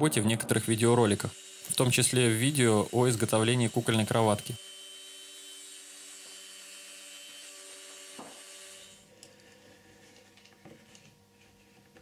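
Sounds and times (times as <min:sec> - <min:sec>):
end mill cutting wood: 0:01.0 - 0:09.0.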